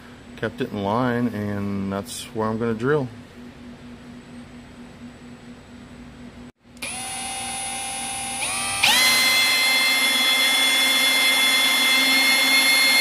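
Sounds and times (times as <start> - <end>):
cordless drill whine: 6.8 - 13.0.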